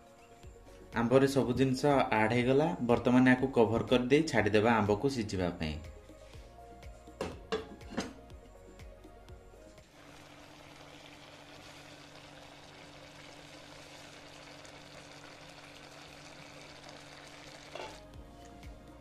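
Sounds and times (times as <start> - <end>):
pan simmering with bubbling hiss: 9.8 - 18.1.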